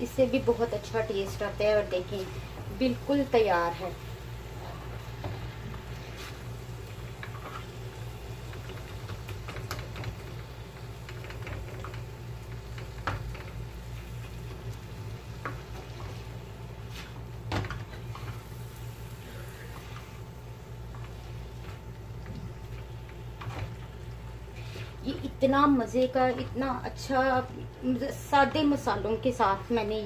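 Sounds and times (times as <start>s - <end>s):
faint sizzling: 0.0s - 30.0s
steady low hum: 0.0s - 30.0s
spatula scraping griddle: 15.9s - 17.3s.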